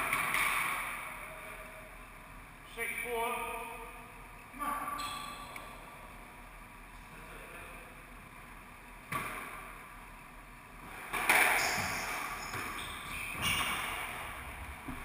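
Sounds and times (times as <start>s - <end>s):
racket hitting squash ball: 9.1s - 9.8s, 10.8s - 15.0s
shoes squeaking on wooden floor: 11.5s - 13.8s.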